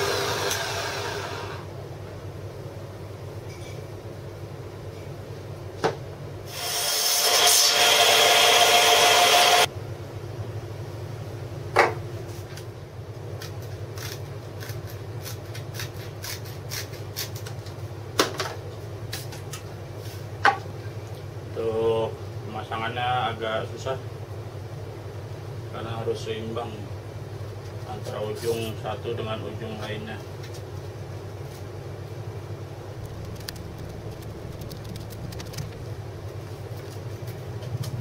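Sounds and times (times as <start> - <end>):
power tool working wood: 6.6 - 9.7
steady low hum: 30.2 - 38.0.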